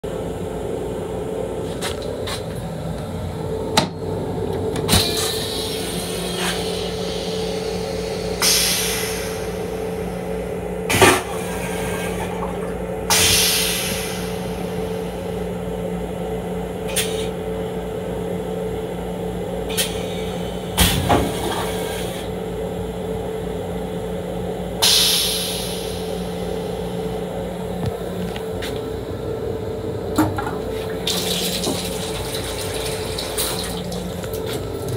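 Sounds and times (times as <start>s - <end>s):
railcar humming: 0.0s - 34.9s
toilet flushing hiss: 4.9s - 10.2s, 13.1s - 14.8s, 30.8s - 34.6s.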